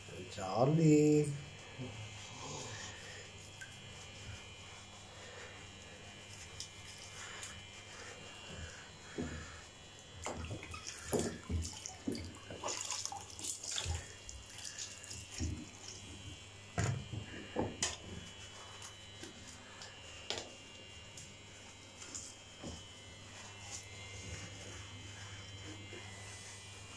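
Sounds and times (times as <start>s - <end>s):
faint steady hum: 0.0s - 26.9s
water splashing in basin: 10.2s - 15.6s.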